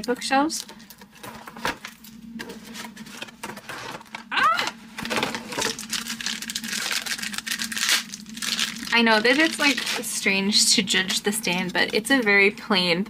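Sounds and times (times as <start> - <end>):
plastic packaging crinkling: 5.0 - 12.2.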